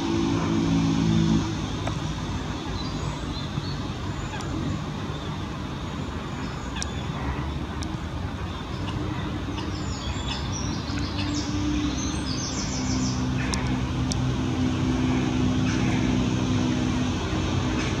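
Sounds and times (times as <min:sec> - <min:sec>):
low motor hum: 0:00.0 - 0:05.7, 0:10.7 - 0:18.0
small birds chirping: 0:02.4 - 0:14.2.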